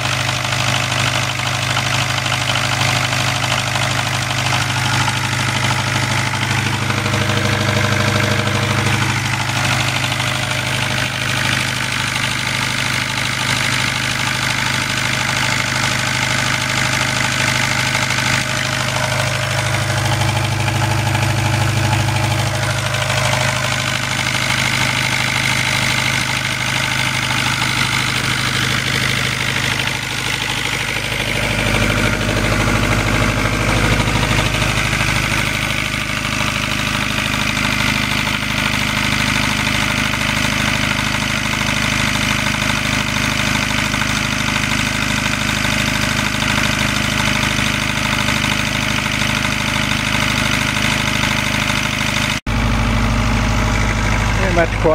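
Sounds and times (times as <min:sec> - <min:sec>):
diesel generator engine running: 0:00.0 - 0:54.9.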